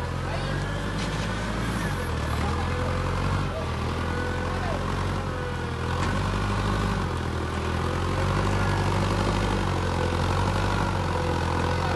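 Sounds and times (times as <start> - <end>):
forklift engine running: 0.0 - 11.9.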